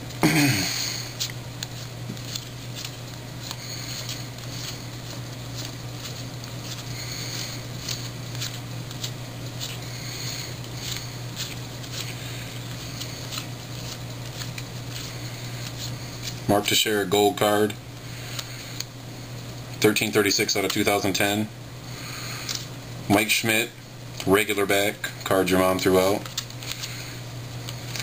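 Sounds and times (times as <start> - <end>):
steady low hum: 0.0 - 28.0
cards flipped by hand: 0.8 - 16.5, 20.6 - 20.9, 25.8 - 28.0.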